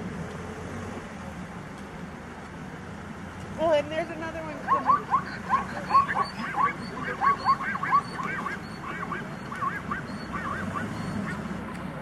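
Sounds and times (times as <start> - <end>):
rapid animal calls: 4.6 - 11.6.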